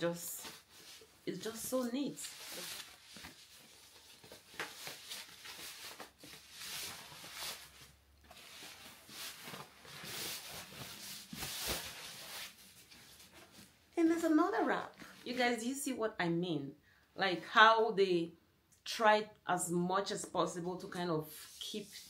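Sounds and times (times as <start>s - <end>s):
tissue paper rustling: 0.1s - 13.7s.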